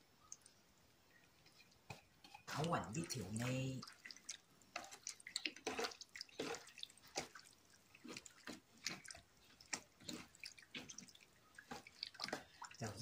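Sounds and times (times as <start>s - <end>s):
wet squishes of meat in marinade: 1.5s - 13.0s.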